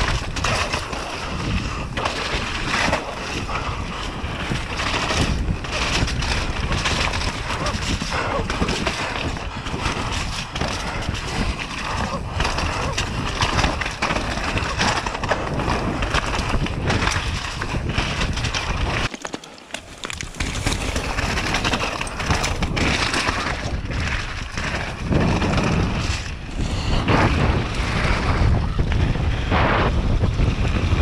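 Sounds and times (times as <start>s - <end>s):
bike rattling over bumps: 0.0s - 31.0s
wind buffeting microphone: 0.0s - 31.0s
bike tyres crunching on gravel: 13.1s - 27.0s.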